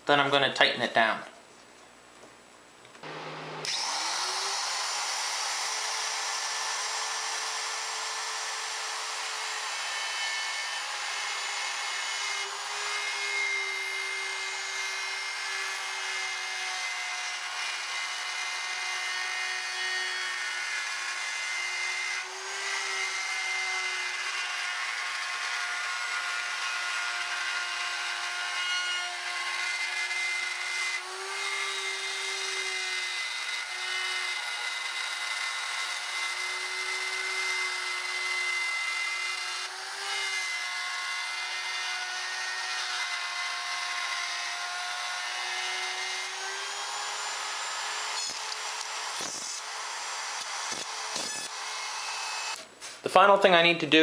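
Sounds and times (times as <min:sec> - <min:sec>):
hiss of router cutting wood: 0:03.0 - 0:10.0
router motor whine: 0:03.0 - 0:52.6.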